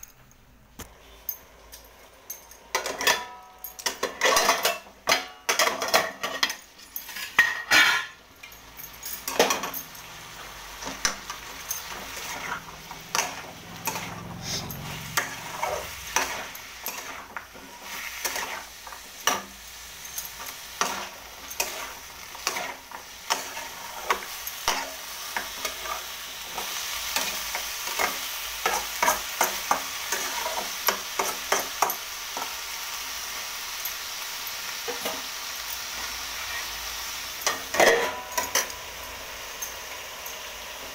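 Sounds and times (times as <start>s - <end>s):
curry sizzling: 0.9s - 40.9s
metal spoon scraping a pot: 11.8s - 31.9s.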